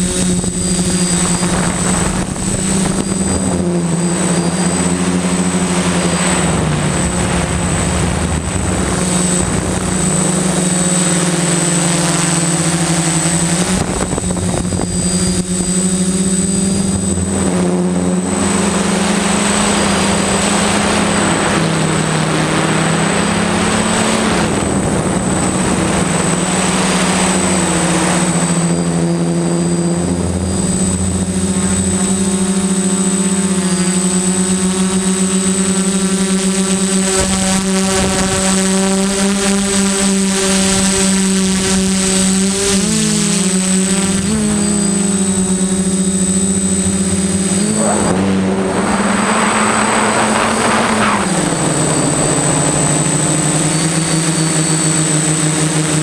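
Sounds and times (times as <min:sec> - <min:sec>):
wind rush: 0:00.0 - 0:11.0, 0:13.6 - 0:15.7, 0:37.2 - 0:39.8, 0:44.5 - 0:53.6
drone motors buzzing: 0:00.0 - 0:56.0
thin high whine: 0:00.0 - 0:56.0.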